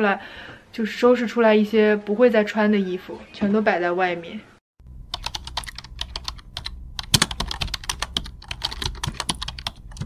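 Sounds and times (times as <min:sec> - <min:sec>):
keyboard key clicks: 0:05.2 - 0:10.0.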